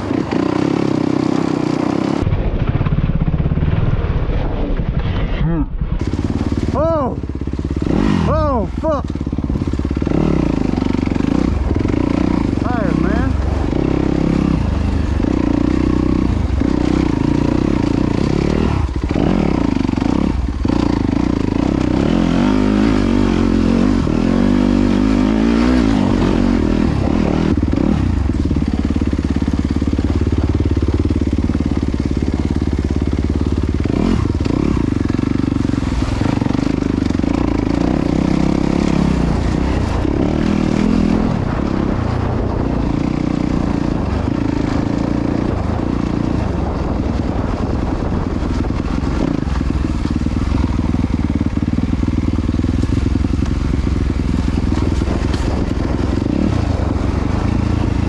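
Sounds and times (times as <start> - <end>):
dirt bike engine revving: 0.0 - 3.8, 5.1 - 58.0.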